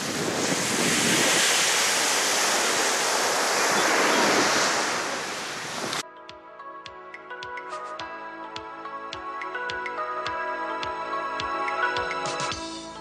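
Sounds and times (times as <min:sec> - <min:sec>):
small waves washing onto beach: 0:00.0 - 0:06.0
wind on microphone: 0:00.0 - 0:06.0
soft music: 0:06.0 - 0:13.0.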